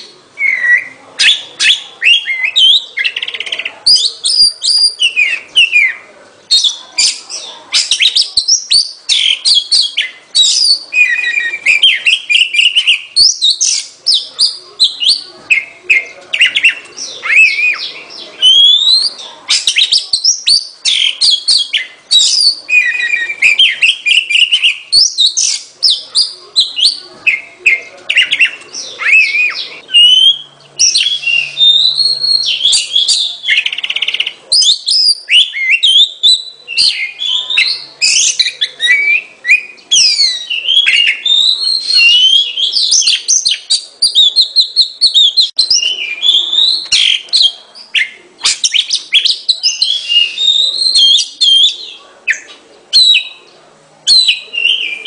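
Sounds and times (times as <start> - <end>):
bird singing whistles and chirps: 0.0 - 53.4, 54.1 - 55.0.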